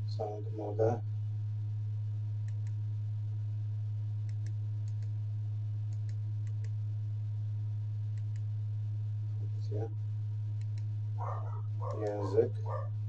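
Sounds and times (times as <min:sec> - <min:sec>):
low hum: 0:00.0 - 0:13.0
remote control buttons clicking: 0:11.8 - 0:12.3.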